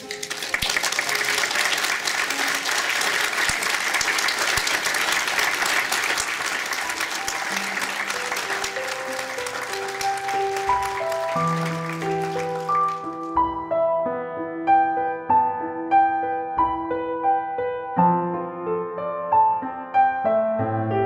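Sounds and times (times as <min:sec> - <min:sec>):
crowd applauding: 0:00.0 - 0:13.6
background music: 0:00.0 - 0:16.4.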